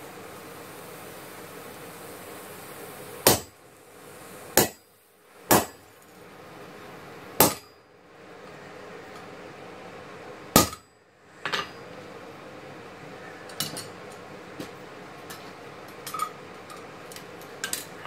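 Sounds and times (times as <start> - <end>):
steady hiss: 0.0 - 18.0
hammer striking metal chisel: 4.6 - 4.8, 5.5 - 5.8, 7.4 - 7.7.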